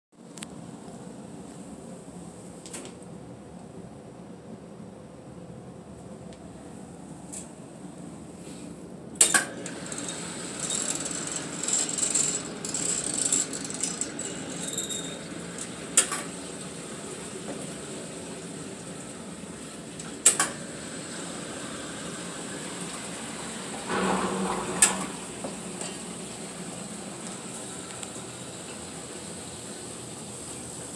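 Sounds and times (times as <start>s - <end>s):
pump running with metallic rattling: 9.2s - 19.2s, 23.8s - 30.3s.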